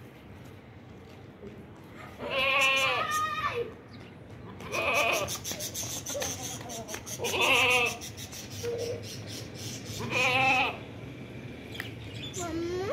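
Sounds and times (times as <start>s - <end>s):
goat bleating: 2.2s - 3.6s, 4.6s - 5.3s, 7.2s - 8.0s, 10.0s - 10.8s.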